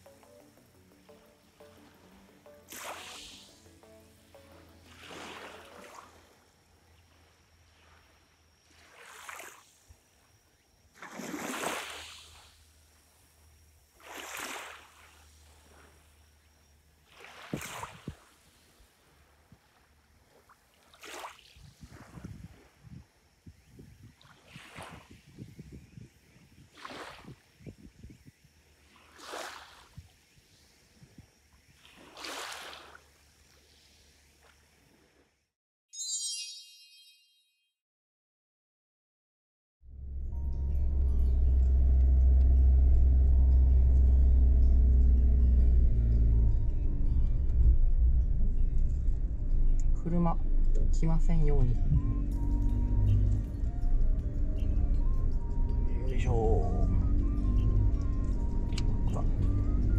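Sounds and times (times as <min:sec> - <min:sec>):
small waves lapping on sand: 0:01.7 - 0:03.6, 0:04.7 - 0:06.5, 0:07.7 - 0:09.9, 0:10.9 - 0:12.8, 0:13.9 - 0:16.0, 0:17.0 - 0:22.8, 0:24.1 - 0:25.3, 0:26.6 - 0:27.6, 0:28.8 - 0:35.2
low rumble: 0:39.9 - 0:59.9.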